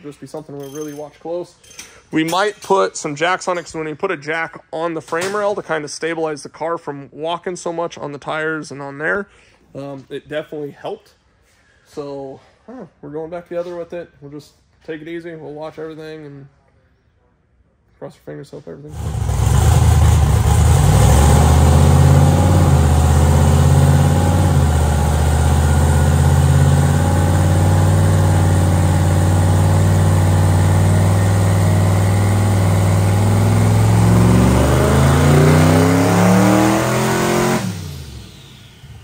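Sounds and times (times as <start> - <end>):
engine running under load: 18.9 - 39.0.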